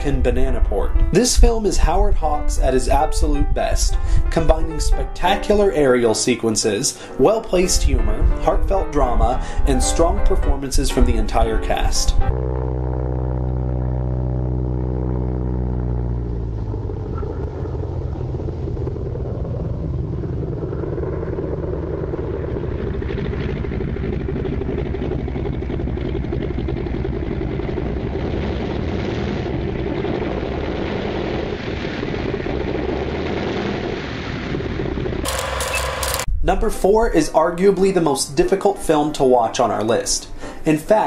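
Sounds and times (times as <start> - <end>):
propeller plane engine droning: 9.1 - 36.4.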